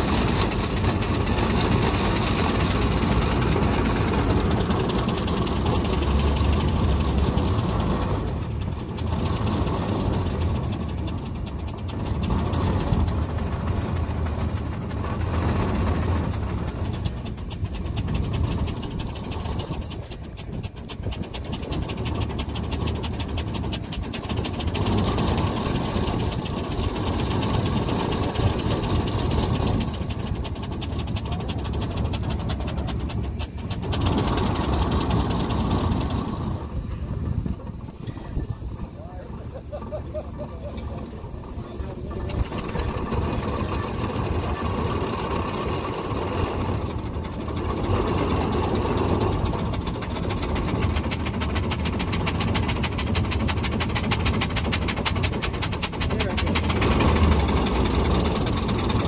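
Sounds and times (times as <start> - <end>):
steam engine mechanical beat: 41.2 - 59.0.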